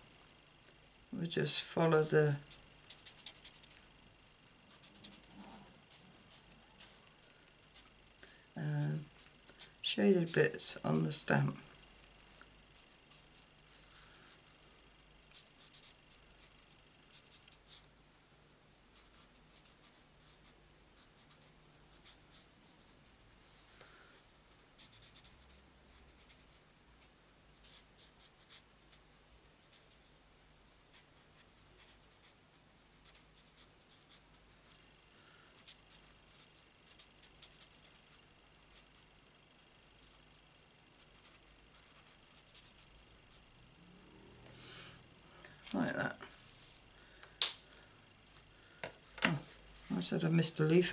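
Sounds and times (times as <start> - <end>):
marker scratching on cardstock: 2.0 - 3.8.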